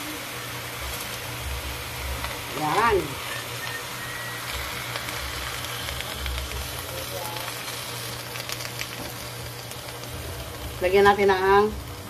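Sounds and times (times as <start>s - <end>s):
food sizzling in a wok: 0.0s - 12.0s.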